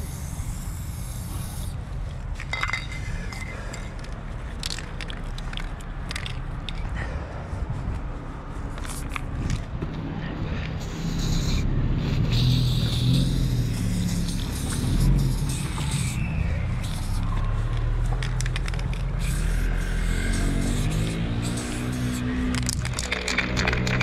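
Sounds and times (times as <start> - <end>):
spray-paint can hissing: 0.0 - 1.8, 10.8 - 24.0.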